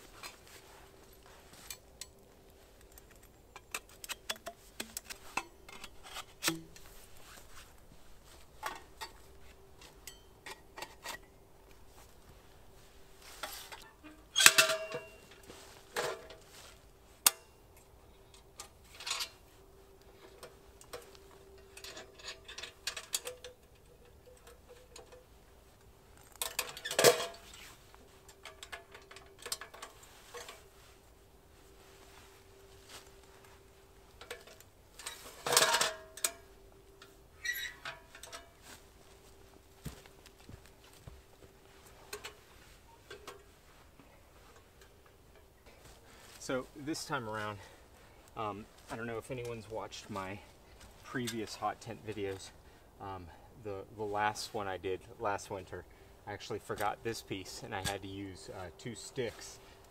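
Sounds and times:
metal parts clinking and knocking: 13.4s - 16.4s, 20.2s - 25.3s, 26.2s - 27.6s, 28.3s - 30.7s, 34.2s - 38.6s.

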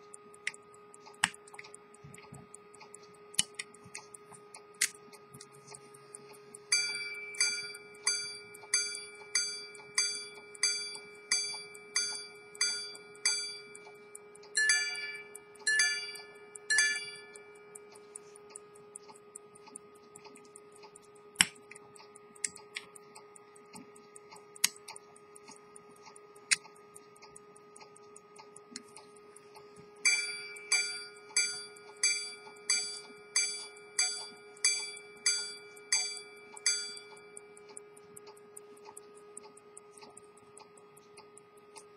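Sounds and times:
faint clicks: 0.0s - 14.6s, 15.2s - 41.9s
pocket watch chimes: 6.7s - 13.8s, 14.6s - 17.4s, 30.0s - 37.3s.

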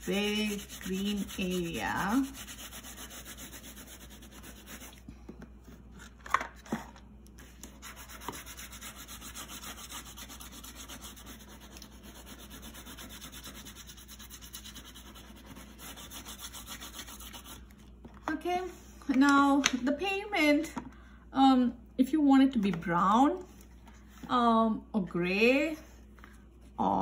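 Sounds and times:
crayon scratching on paper: 0.0s - 5.0s, 7.7s - 17.6s.

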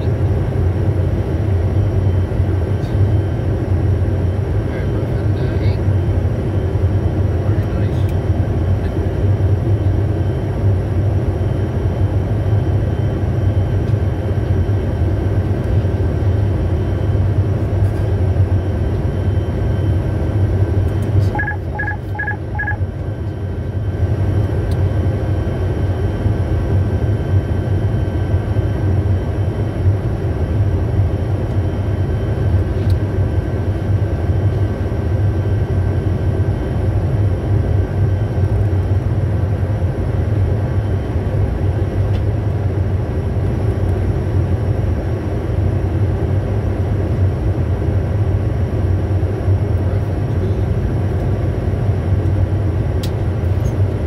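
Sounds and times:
jet cockpit rumble: 0.0s - 54.0s
short electronic beeps: 21.3s - 22.8s.

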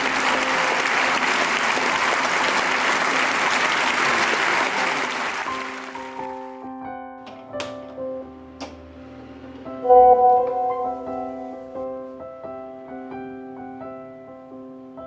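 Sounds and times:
audience applauding: 0.0s - 6.6s
piano music: 5.4s - 15.0s.

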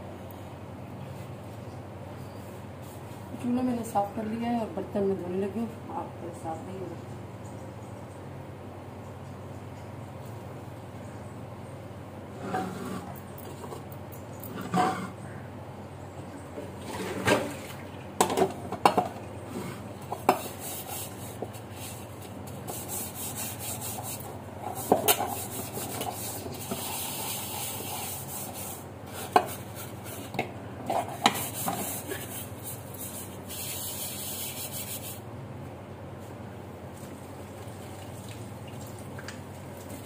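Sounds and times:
scrubbing pots at sink: 16.6s - 35.2s.

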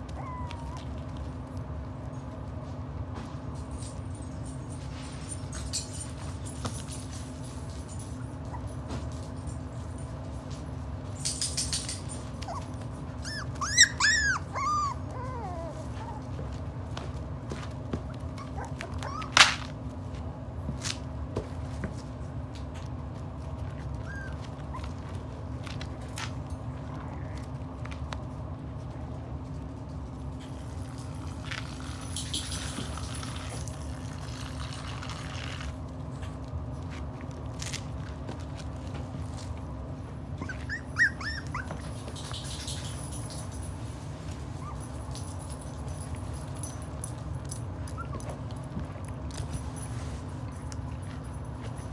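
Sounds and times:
faint puppy squeaks: 0.0s - 1.5s, 8.2s - 8.9s, 11.9s - 16.8s, 17.7s - 19.9s, 23.6s - 26.0s, 40.2s - 43.0s, 44.3s - 45.1s, 47.7s - 48.6s
puppies tapping and scuffling: 0.0s - 51.9s
steady low hum: 0.0s - 51.9s.

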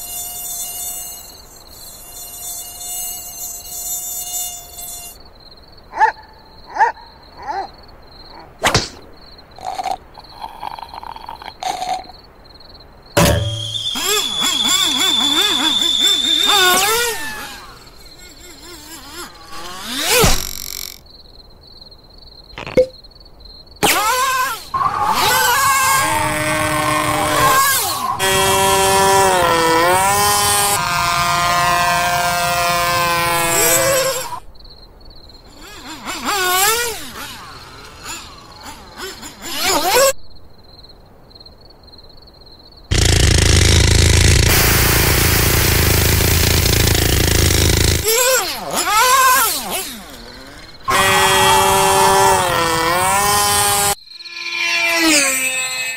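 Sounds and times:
short squeaky chirps: 0.0s - 5.2s, 13.2s - 21.0s, 53.4s - 55.9s
high mosquito whine: 0.0s - 5.9s, 9.2s - 41.5s, 42.4s - 55.9s
whip-like crack: 8.6s - 9.1s
hissy puffs: 42.9s - 48.2s.

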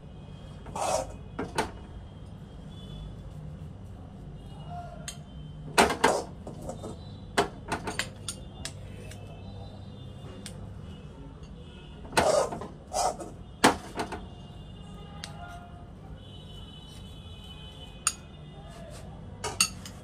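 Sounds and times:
utensils clinking and scraping pan: 19.4s - 20.0s.

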